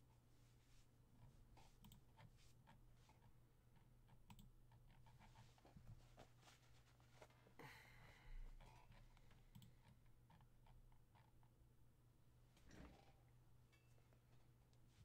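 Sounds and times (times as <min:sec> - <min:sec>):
computer keyboard and mouse clicks: 0:01.8 - 0:02.3, 0:03.8 - 0:05.0, 0:09.3 - 0:10.5.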